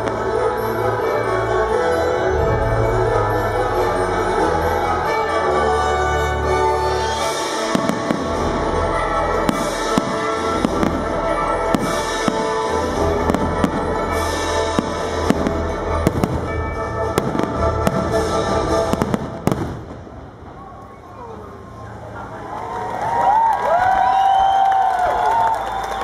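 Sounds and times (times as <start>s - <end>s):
music: 0.0s - 20.1s, 23.6s - 26.0s
fireworks bursting with sharp bangs: 7.2s - 21.0s.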